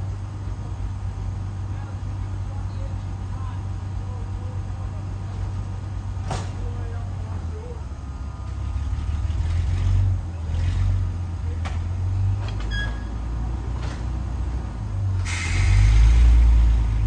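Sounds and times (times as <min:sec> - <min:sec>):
railcar engine rumbling: 0:00.0 - 0:17.0
air hissing: 0:15.1 - 0:17.0.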